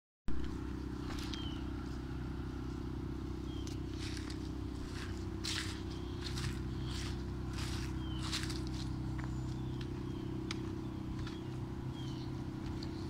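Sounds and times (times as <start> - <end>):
low machine hum: 0.3 - 13.0
footsteps or rustles: 3.6 - 9.9.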